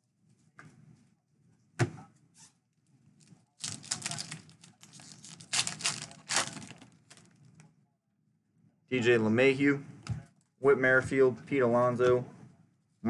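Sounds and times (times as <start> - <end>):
card pack wrapper tearing: 3.6 - 7.3.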